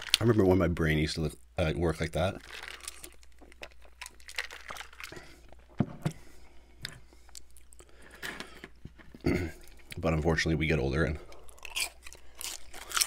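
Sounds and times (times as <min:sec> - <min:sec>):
chewing with crunches: 0:02.4 - 0:05.7, 0:11.3 - 0:13.0.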